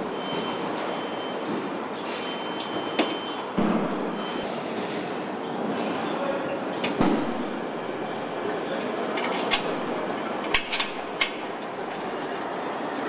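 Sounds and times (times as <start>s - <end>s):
metal clanks and clicks: 9.1s - 13.0s.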